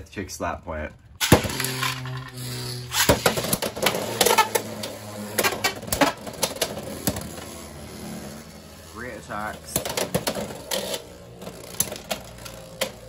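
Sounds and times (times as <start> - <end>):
plastic tops clacking: 1.2 - 7.5, 9.5 - 13.0
spinning tops humming: 1.2 - 13.0.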